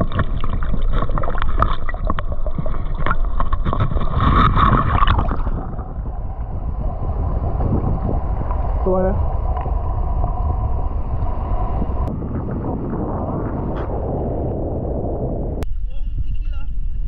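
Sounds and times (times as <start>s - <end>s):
muffled underwater clicks and crackles: 0.0s - 10.3s
rushing water: 0.0s - 12.1s
wind noise on microphone: 0.0s - 17.0s.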